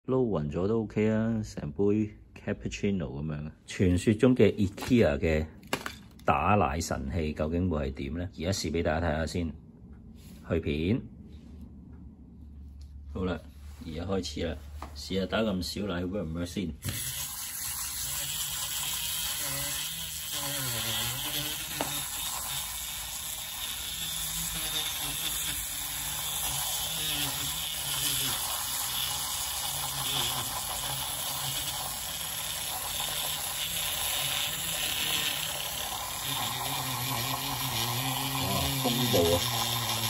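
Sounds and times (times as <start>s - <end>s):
milk frother whirring: 16.8s - 40.0s.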